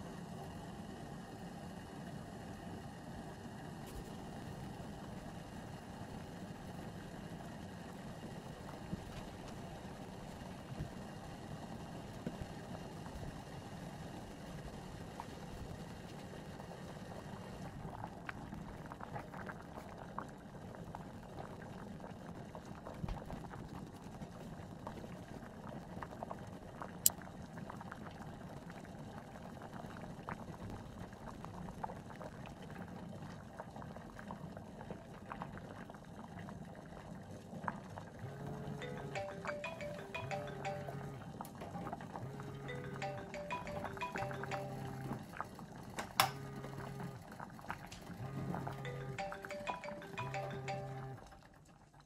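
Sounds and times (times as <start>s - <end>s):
water boiling and bubbling: 0.0s - 52.0s
timer alarm ringing: 38.2s - 41.3s, 42.2s - 45.2s, 48.2s - 51.3s.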